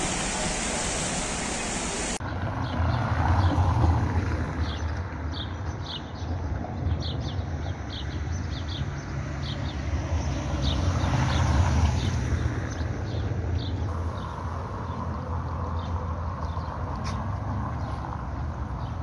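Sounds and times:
car passing on wet street: 0.0 - 5.4, 9.2 - 12.9, 13.9 - 19.0
small birds chirping: 4.6 - 19.0.

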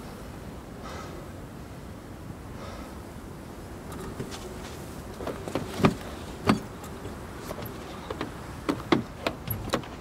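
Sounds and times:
knocks on truck cab handles and door: 7.5 - 10.0.

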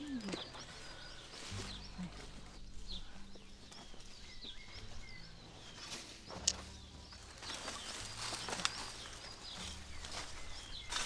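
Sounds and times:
small birds chirping: 0.0 - 11.0
rustling: 0.2 - 11.0.

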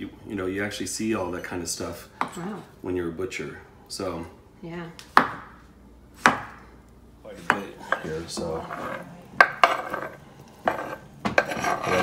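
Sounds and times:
knife chopping on wooden board: 5.1 - 5.6, 6.2 - 6.6, 7.4 - 12.0
scraping food into frying pan: 7.8 - 12.0.

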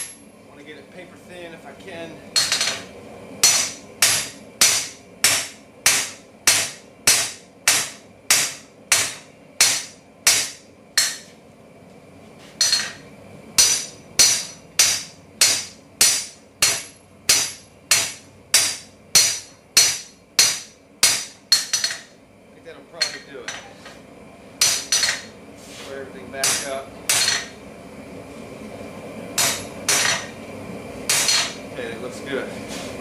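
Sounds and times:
hammer striking metal on anvil: 2.4 - 11.3, 12.6 - 13.0, 13.6 - 22.1, 23.0 - 23.7, 24.6 - 25.3, 26.4 - 27.6, 29.4 - 30.4, 31.1 - 31.6.

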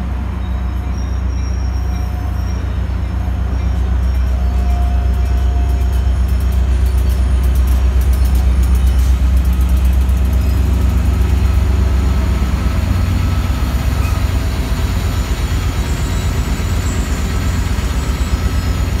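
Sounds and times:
locomotive diesel engine drone: 0.0 - 19.0.

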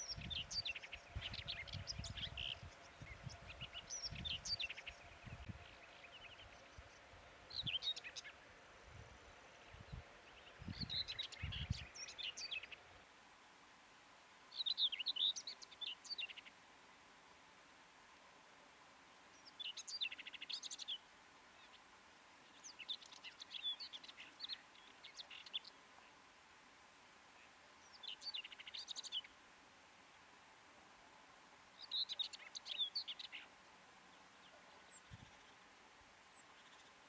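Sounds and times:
bird singing: 0.0 - 8.4, 9.6 - 12.8, 14.5 - 16.5, 19.3 - 21.0, 22.4 - 25.8, 27.8 - 29.3, 31.8 - 33.5.

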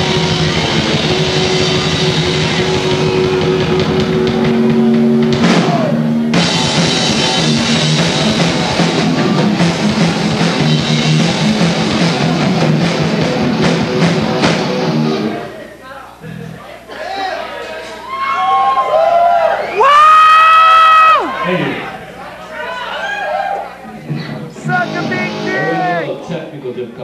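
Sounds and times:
drum kit playing: 0.0 - 15.4, 24.5 - 26.1
distorted electric guitar: 0.0 - 15.5, 24.0 - 26.3.

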